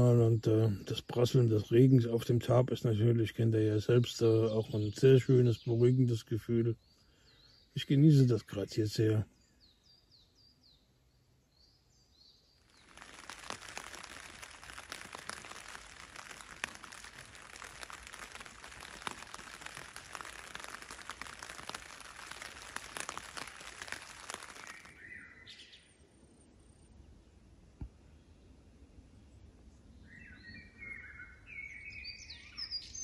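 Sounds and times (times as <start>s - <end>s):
birds chirping: 0.0s - 26.0s
rain pattering on a tarp: 12.6s - 25.1s.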